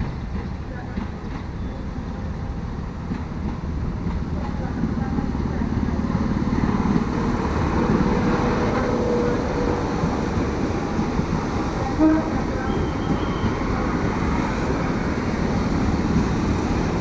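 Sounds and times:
train wheels rumbling: 0:00.0 - 0:17.0
brief tone: 0:12.6 - 0:13.6.

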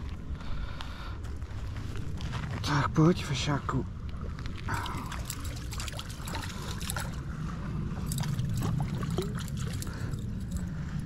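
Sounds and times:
water trickling: 0:04.6 - 0:10.8
fish splashing at water surface: 0:04.7 - 0:07.3, 0:08.0 - 0:10.6.

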